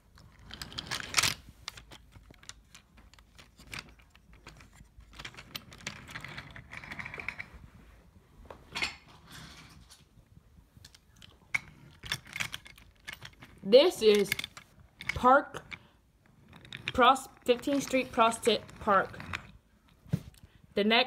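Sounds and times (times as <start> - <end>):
wooden toy train wheels clicking: 10.9 - 19.6.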